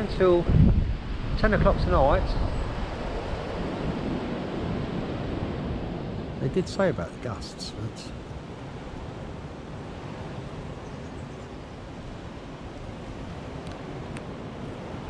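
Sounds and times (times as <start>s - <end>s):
wind blowing over microphone: 0.0s - 15.0s
faint ticks: 13.6s - 14.3s.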